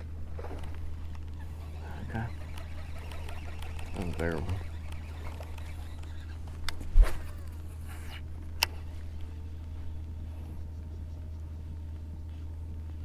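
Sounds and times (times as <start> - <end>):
fishing line whirring off reel: 0.3 - 9.2
fishing reel click: 1.7 - 6.8.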